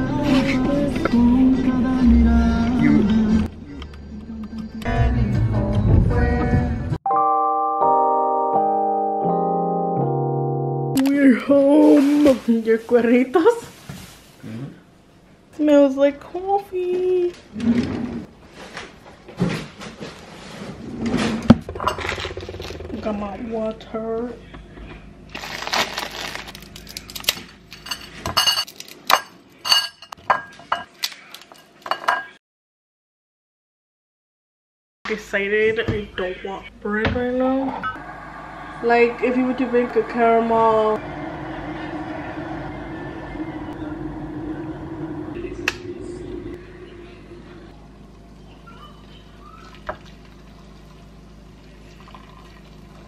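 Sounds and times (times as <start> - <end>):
metal spoon clinking in bowl: 27.8 - 30.9
water pouring into a bowl: 49.5 - 53.0.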